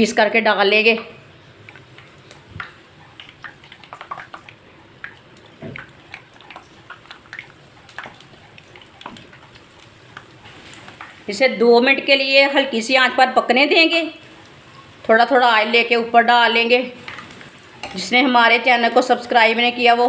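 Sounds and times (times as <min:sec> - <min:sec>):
food sizzling in hot oil: 0:01.3 - 0:20.0
oil crackling and popping: 0:01.4 - 0:11.6, 0:14.1 - 0:15.3, 0:16.6 - 0:18.6.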